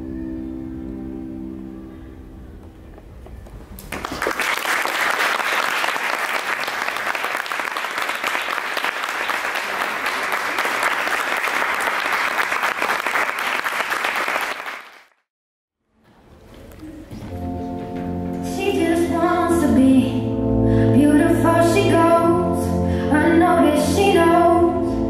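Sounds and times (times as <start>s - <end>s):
audience applauding: 3.8s - 15.2s.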